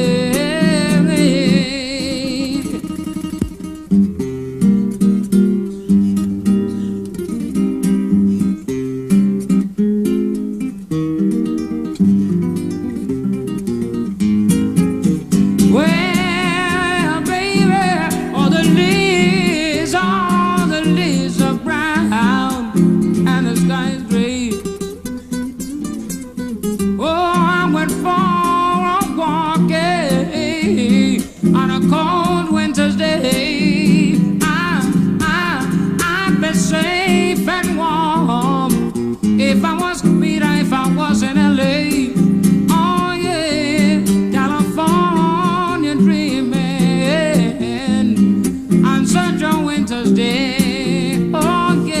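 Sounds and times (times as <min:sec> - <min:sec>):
man singing wordless melody: 0:00.0 - 0:03.3, 0:15.6 - 0:25.0, 0:26.9 - 0:52.0
strummed acoustic guitar: 0:00.0 - 0:52.0.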